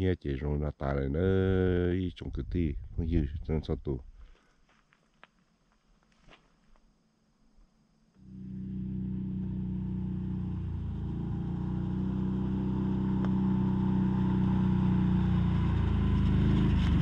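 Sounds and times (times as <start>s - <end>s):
vehicle engine running: 8.2s - 17.0s.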